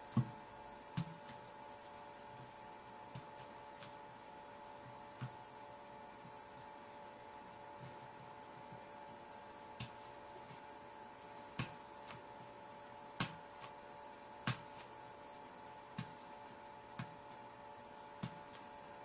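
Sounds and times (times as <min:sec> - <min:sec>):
electrical hum: 0:00.0 - 0:19.0
fingernails tapping apple skin: 0:18.1 - 0:18.7.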